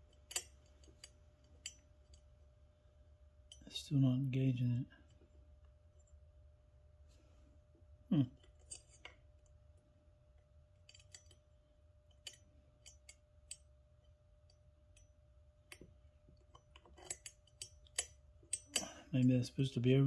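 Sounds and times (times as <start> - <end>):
faint steady tone: 0.0 - 20.0
pliers clicking on metal parts: 0.2 - 1.8, 10.9 - 11.4, 12.1 - 13.6, 16.5 - 19.0.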